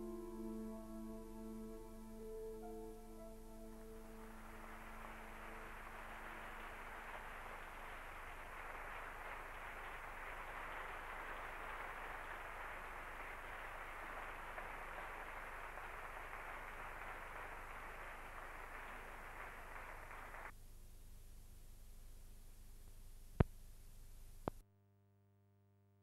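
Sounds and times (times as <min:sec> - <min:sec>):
low mains hum: 0:00.0 - 0:24.6
audience applauding: 0:03.6 - 0:20.5.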